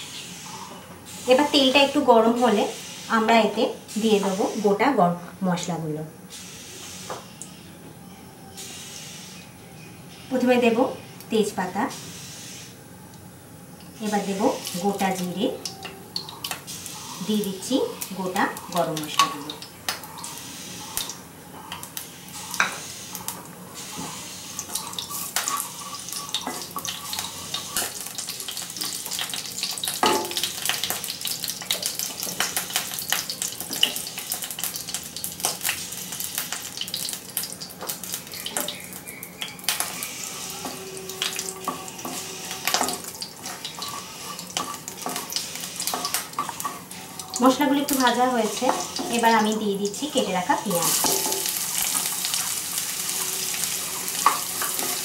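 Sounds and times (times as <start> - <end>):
spices sizzling and crackling in oil: 8.5 - 55.0
wooden spatula scraping pan: 23.9 - 28.0, 40.0 - 47.2.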